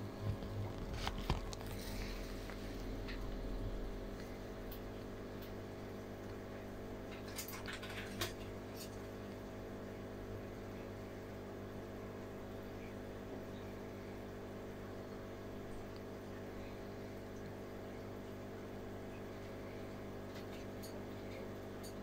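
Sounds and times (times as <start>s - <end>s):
aquarium equipment humming: 0.0s - 22.0s.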